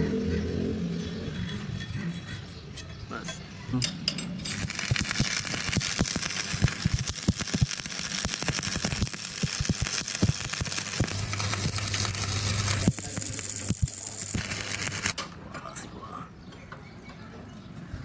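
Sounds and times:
welding arc crackling and popping: 4.4s - 15.2s.

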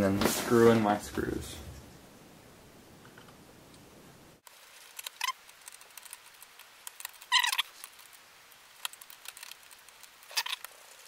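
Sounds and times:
screwdriver squeaks and scrapes: 5.0s - 6.4s, 7.0s - 8.0s, 9.0s - 10.7s.

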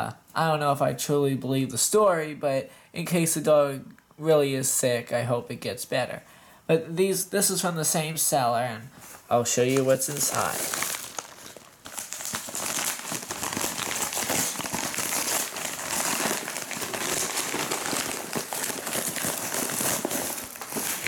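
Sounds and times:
paper crinkling and rustling: 9.1s - 21.0s.

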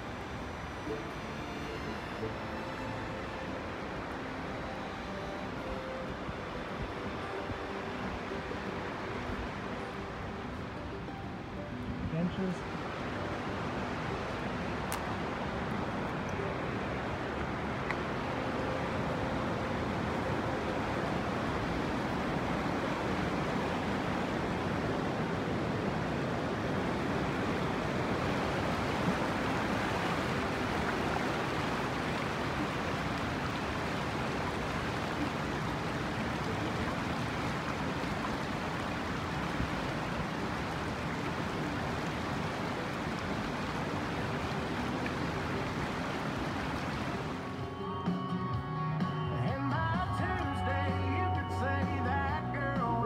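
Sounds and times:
river rapids rushing over rocks: 0.0s - 47.6s.

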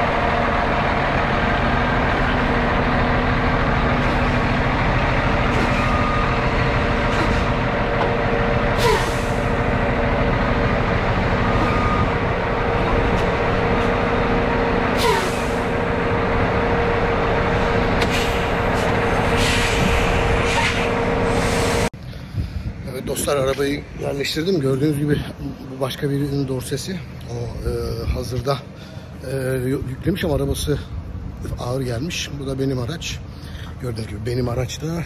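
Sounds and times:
diesel truck engine running: 0.0s - 21.9s
sharp air hisses: 18.0s - 21.9s.

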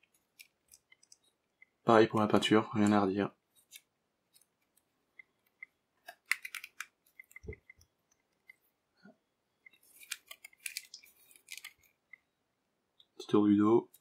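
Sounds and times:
plastic clicks and scraping: 0.0s - 1.8s, 3.6s - 8.6s, 9.6s - 12.2s.

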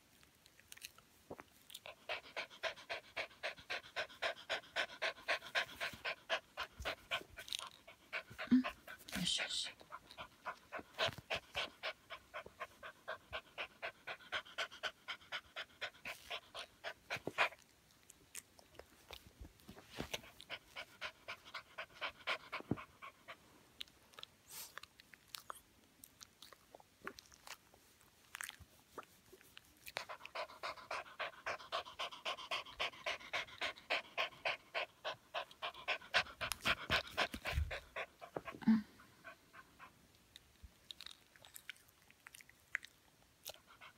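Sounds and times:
small dog panting: 1.7s - 17.7s, 19.1s - 24.8s, 29.8s - 40.1s, 43.4s - 43.9s.

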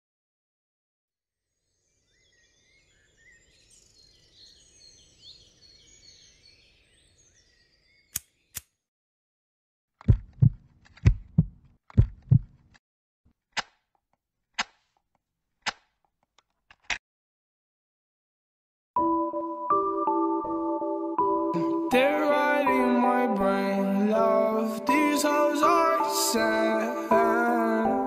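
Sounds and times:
faint birdsong: 1.5s - 8.8s
sharp clicks: 10.0s - 12.8s, 13.5s - 13.9s, 14.6s - 15.0s, 15.6s - 17.0s
heartbeat low thumps: 10.1s - 12.6s.

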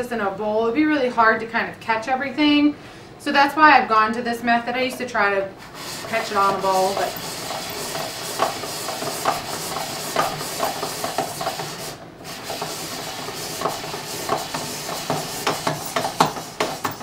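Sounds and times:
spiralizer blade scraping squash: 5.6s - 17.0s.

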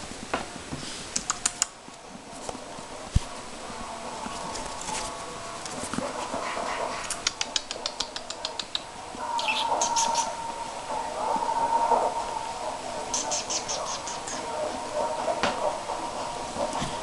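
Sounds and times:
quick clicks: 1.2s - 1.7s
high whine: 1.8s - 17.0s
puppies whimpering: 9.3s - 10.6s, 13.1s - 14.5s.

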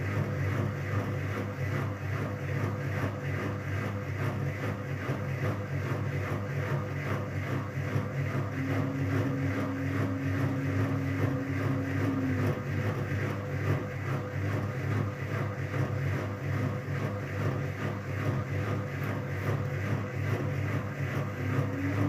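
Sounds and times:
washing machine motor hum: 0.0s - 22.0s
higher tone: 8.6s - 13.0s.

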